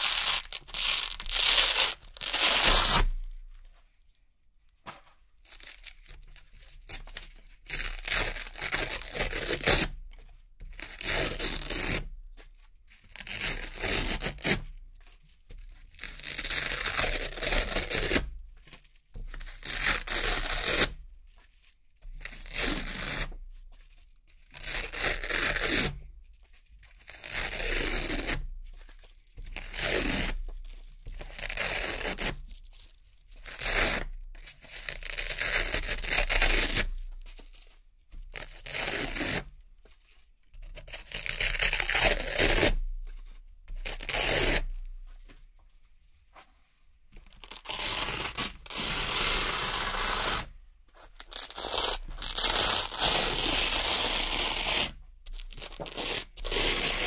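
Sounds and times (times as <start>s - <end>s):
velcro ripping: 0.0s - 3.4s, 7.7s - 9.9s, 10.8s - 12.0s, 16.0s - 18.2s, 19.6s - 20.9s, 34.7s - 37.6s, 40.8s - 42.8s, 43.7s - 44.8s, 47.3s - 57.0s.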